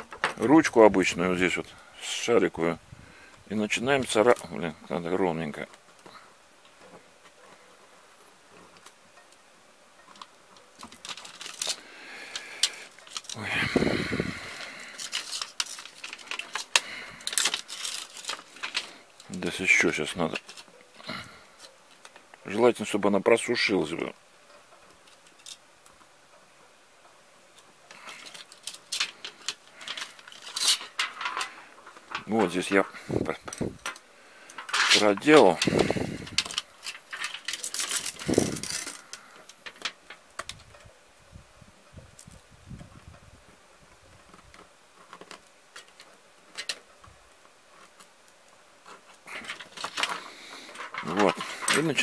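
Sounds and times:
aluminium sheet crinkling: 0:10.0 - 0:26.1, 0:27.5 - 0:40.9, 0:43.8 - 0:52.0.

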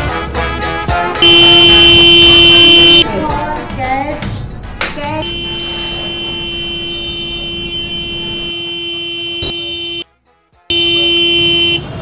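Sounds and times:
vehicle horn blast: 0:01.2 - 0:03.0, 0:05.2 - 0:10.0, 0:10.7 - 0:12.0.

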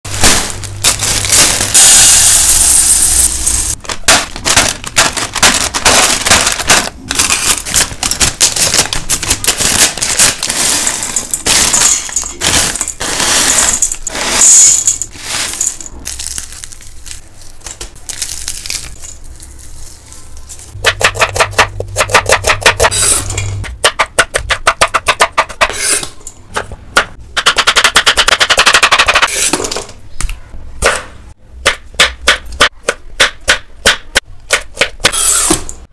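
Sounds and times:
scissors cutting plastic packet: 0:00.1 - 0:02.0, 0:03.7 - 0:14.2
crisp snacks poured into bowl: 0:10.5 - 0:17.2.

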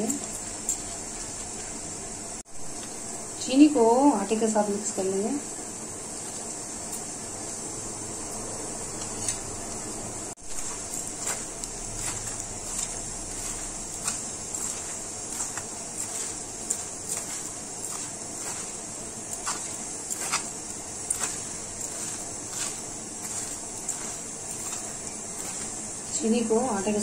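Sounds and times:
background hiss: 0:00.0 - 0:27.0
hand mixing flour in glass bowl: 0:10.4 - 0:27.0.

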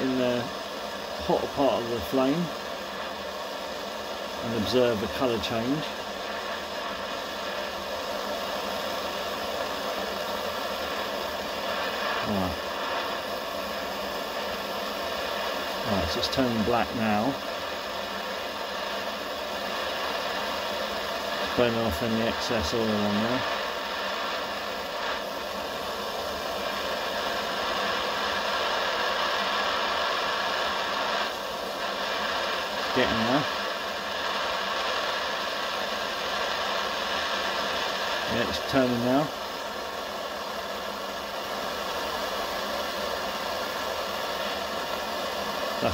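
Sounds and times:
blowtorch hissing: 0:00.0 - 0:45.9.

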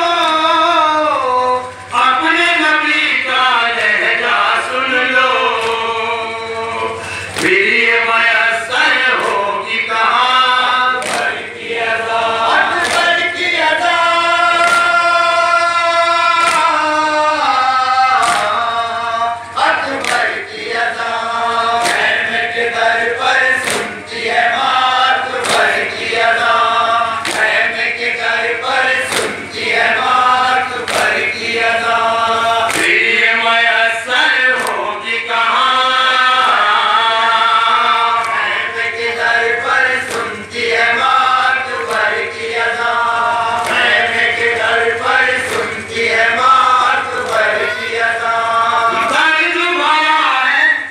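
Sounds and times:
crowd chanting: 0:00.0 - 0:50.9
men singing a lament through a pa: 0:00.0 - 0:50.9
unison chest-beating strikes: 0:09.0 - 0:17.0, 0:17.8 - 0:33.6, 0:36.4 - 0:49.2.

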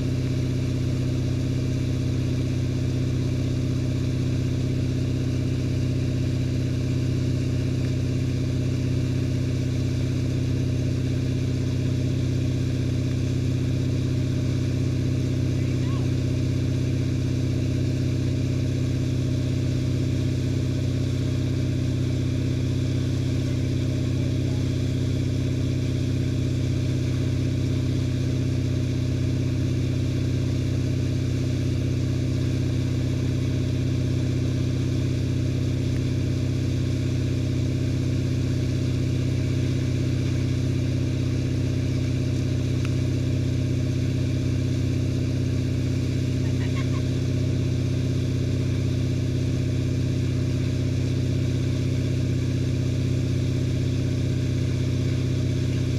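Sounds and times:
boat engine droning: 0:12.6 - 0:50.3, 0:52.9 - 0:55.9.

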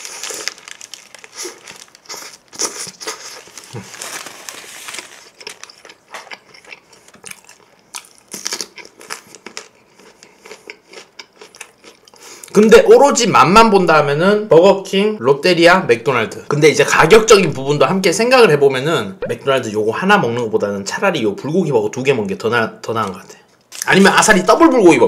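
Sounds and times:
paper wrapper crinkling: 0:00.0 - 0:06.4
close-up chewing: 0:00.0 - 0:12.5.

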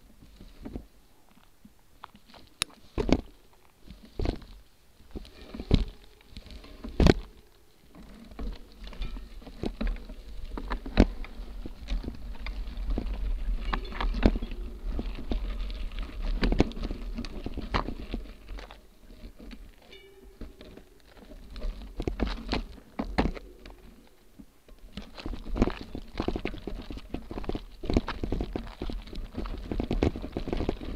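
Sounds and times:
wind: 0:00.0 - 0:30.9
bike knocking and rattling: 0:02.0 - 0:30.9
tyre rumble: 0:02.2 - 0:30.9.

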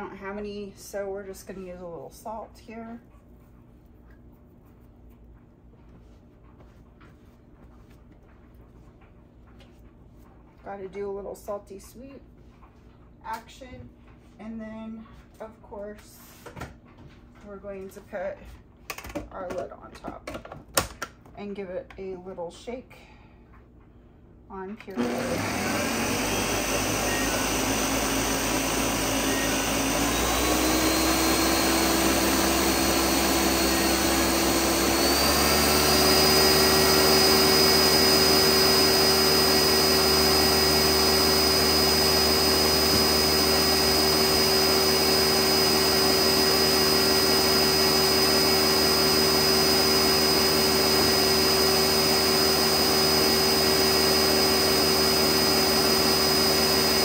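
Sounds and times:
blender motor whining: 0:24.9 - 0:57.0.

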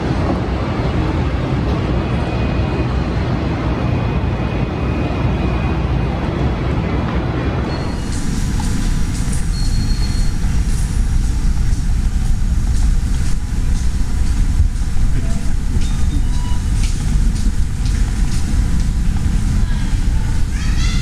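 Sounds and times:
loud low rumble: 0:07.7 - 0:21.0.

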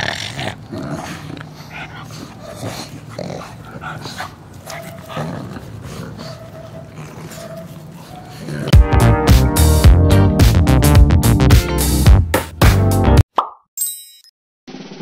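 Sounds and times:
dogs snuffling: 0:00.2 - 0:08.7.

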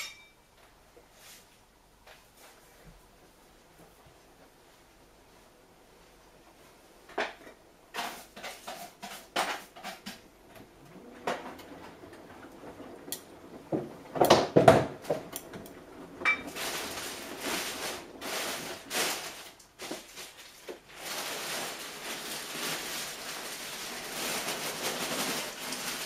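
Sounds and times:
washing machine drum clunking: 0:09.7 - 0:18.2
washing machine swishing hiss: 0:14.9 - 0:26.0.

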